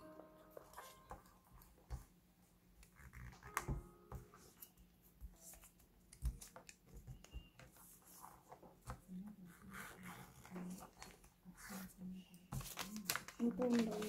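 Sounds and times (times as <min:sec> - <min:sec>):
paper rustling and folding: 0:05.4 - 0:14.0.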